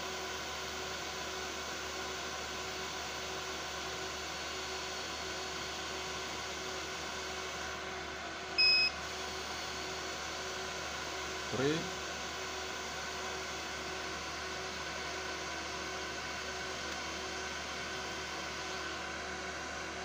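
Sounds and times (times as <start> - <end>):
short high electronic beep: 8.6 - 8.9.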